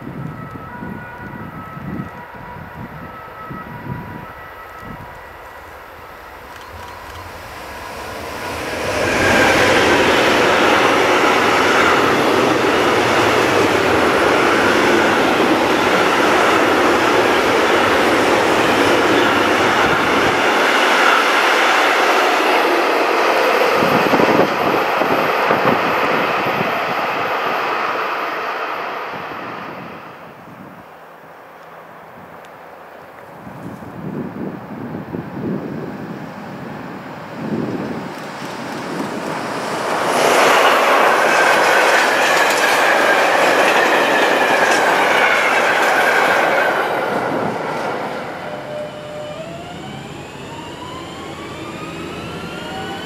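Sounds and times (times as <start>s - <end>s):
freight train wheels clattering: 38.3s - 48.7s.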